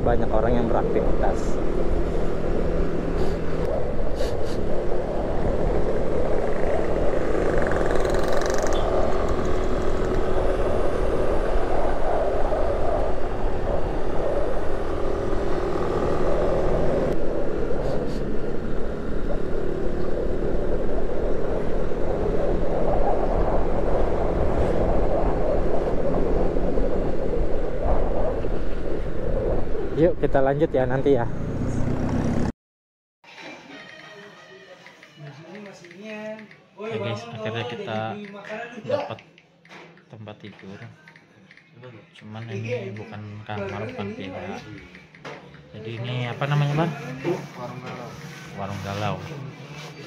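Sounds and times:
wind and road noise: 0.0 - 32.5.

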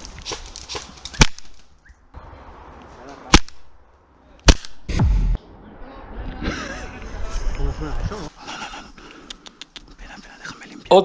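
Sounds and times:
airsoft rifle shots: 4.4 - 5.2.

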